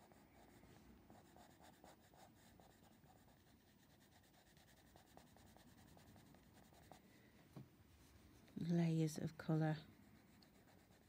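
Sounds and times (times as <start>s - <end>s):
pencil scratching on paper: 0.0s - 7.0s, 9.7s - 11.0s.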